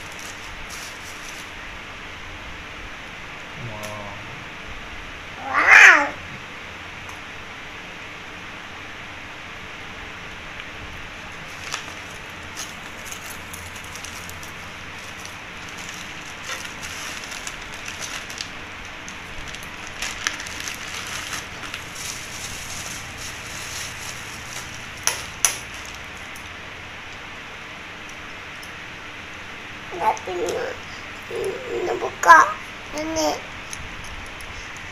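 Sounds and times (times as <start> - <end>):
plastic bags crinkling: 0.0 - 1.6, 11.4 - 26.4.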